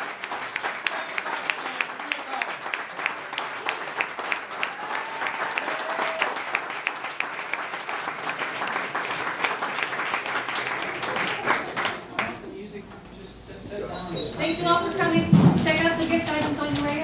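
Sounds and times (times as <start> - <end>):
audience applauding: 0.0 - 12.4
nearby person clapping: 0.0 - 12.4.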